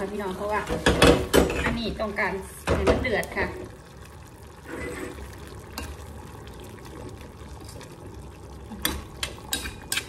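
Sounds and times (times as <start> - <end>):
curry bubbling in a pot: 0.0 - 10.0
metal spoon stirring and clinking: 8.8 - 10.0.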